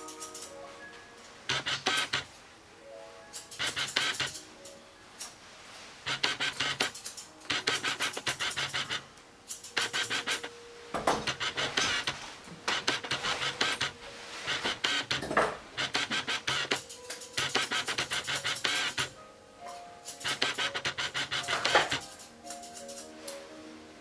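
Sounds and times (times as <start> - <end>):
shears snipping hair: 0.0 - 0.6, 1.5 - 2.3, 3.3 - 5.4, 6.0 - 10.5, 11.2 - 15.2, 15.8 - 19.2, 20.0 - 23.4.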